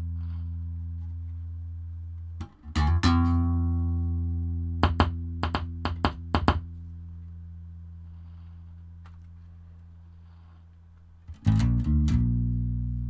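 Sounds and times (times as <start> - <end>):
bass guitar note ringing: 0.0 - 5.9, 11.3 - 13.0.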